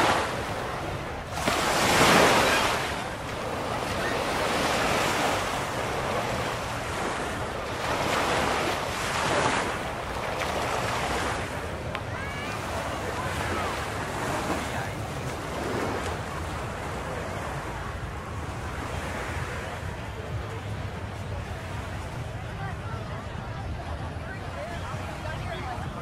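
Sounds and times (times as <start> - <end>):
waves breaking on beach: 0.0 - 26.0.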